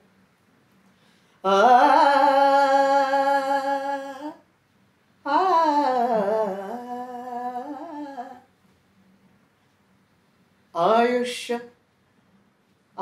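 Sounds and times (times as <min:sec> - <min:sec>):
man singing unaccompanied: 0:01.4 - 0:04.4, 0:05.3 - 0:08.5, 0:10.8 - 0:11.7.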